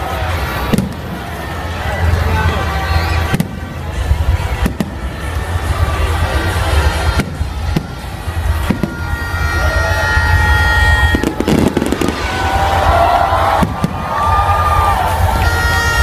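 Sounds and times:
firework bangs: 0.0 - 16.0.

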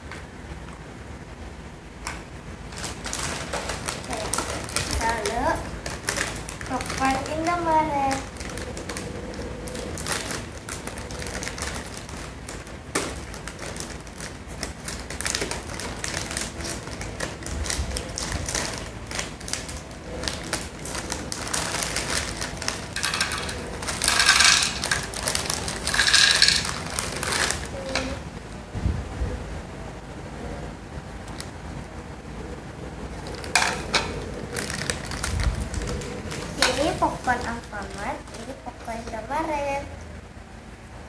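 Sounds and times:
plastic bag crinkling: 2.6 - 28.2, 33.1 - 39.4
popcorn pouring onto plastic plate: 2.7 - 28.2, 33.3 - 38.5
scissors cutting plastic: 2.7 - 28.2, 33.2 - 38.9.

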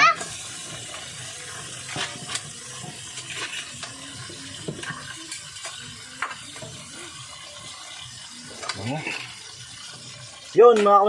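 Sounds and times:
cooking hiss: 0.0 - 11.0.

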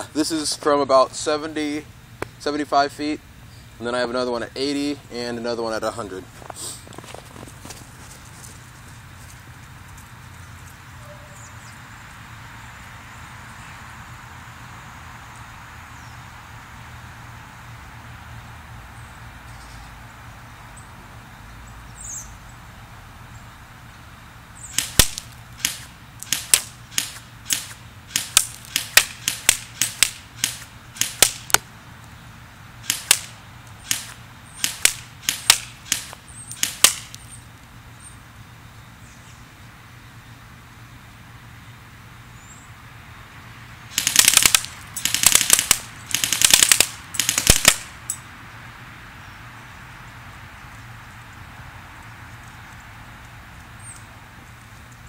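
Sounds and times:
airsoft gun firing: 24.8 - 31.6, 32.8 - 37.2, 43.9 - 48.0
pellets smacking into paper target: 24.8 - 31.6, 32.8 - 37.2, 43.9 - 47.9.

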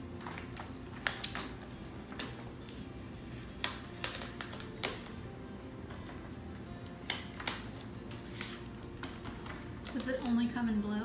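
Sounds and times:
packing paper crinkling: 0.0 - 5.2.

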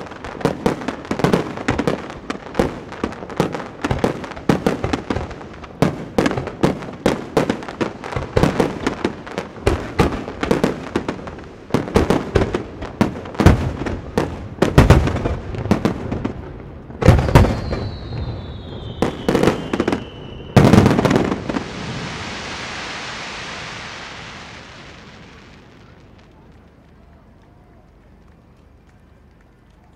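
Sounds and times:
firework shells booming: 0.0 - 26.6
firework whistle falling: 17.0 - 26.3
firework hiss: 17.0 - 26.4.

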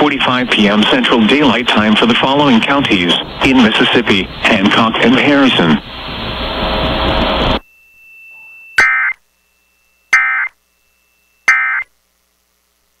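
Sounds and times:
radio static hiss: 0.0 - 7.6, 10.1 - 10.7, 11.4 - 13.0
harsh digital data bursts: 10.1 - 10.6, 11.4 - 11.9.

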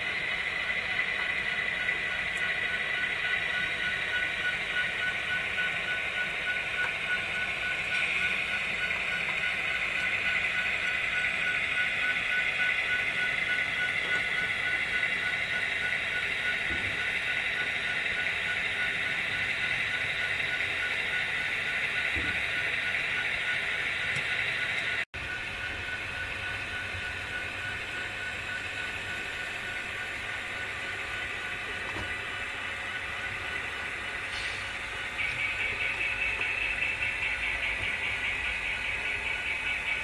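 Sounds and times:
model trains whirring on rails: 0.0 - 40.0.

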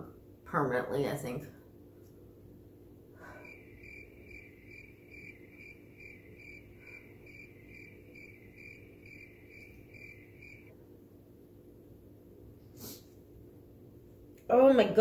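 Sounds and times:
crickets chirping: 3.2 - 10.7.

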